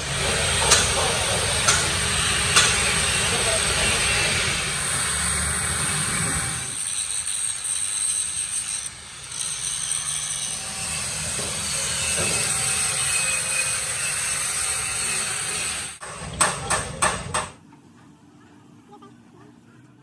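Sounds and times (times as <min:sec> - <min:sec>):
power tool whining: 0:00.0 - 0:16.0
sharp metallic knocks: 0:00.6 - 0:03.0.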